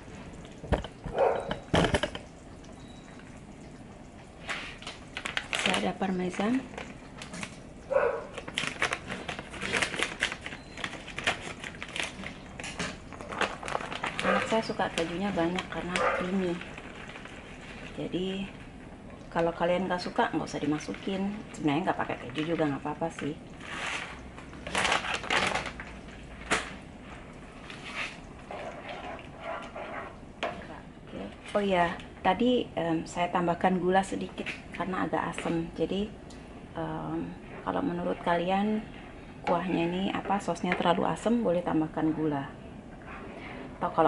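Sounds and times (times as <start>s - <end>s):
plastic packet crinkling: 4.7s - 18.0s, 23.6s - 26.7s.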